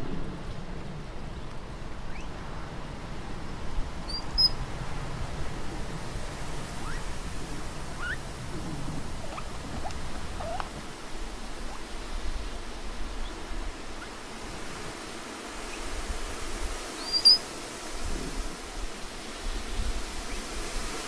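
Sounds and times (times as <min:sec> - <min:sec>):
steady hiss: 0:00.0 - 0:21.0
animal squeaking: 0:04.1 - 0:04.5, 0:08.0 - 0:08.2, 0:10.4 - 0:10.8, 0:17.0 - 0:17.4.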